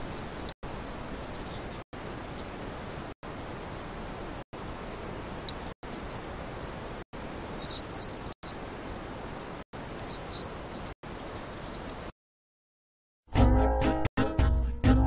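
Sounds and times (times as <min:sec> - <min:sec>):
hedgehogs squeaking: 0:02.3 - 0:03.1, 0:06.7 - 0:08.6, 0:10.0 - 0:11.0.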